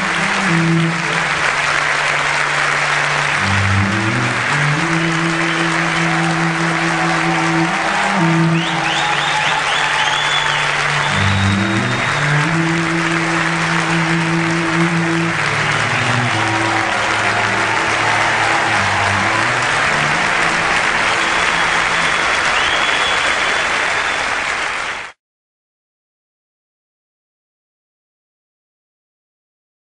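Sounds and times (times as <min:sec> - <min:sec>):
music with low notes: 0:00.0 - 0:09.1, 0:10.7 - 0:22.3
audience applauding: 0:00.0 - 0:25.2.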